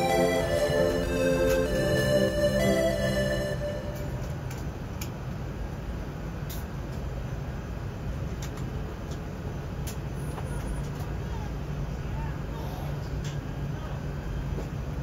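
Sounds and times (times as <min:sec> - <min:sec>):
music: 0:00.0 - 0:04.3
aircraft cabin low rumble: 0:00.0 - 0:15.0.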